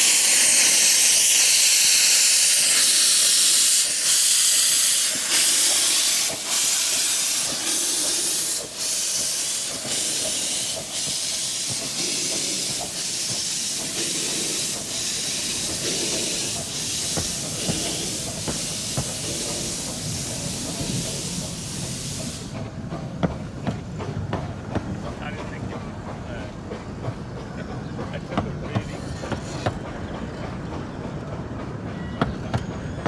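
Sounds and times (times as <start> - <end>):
steam locomotive hissing: 0.0 - 33.0
wheel-on-rail rumble and clicks: 7.4 - 33.0.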